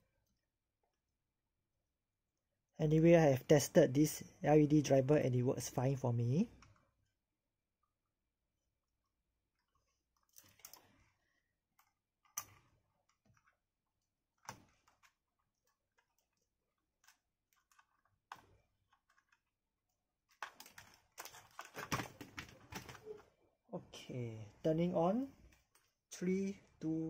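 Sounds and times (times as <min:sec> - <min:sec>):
plastic box clicks and knocks: 0:20.3 - 0:23.0.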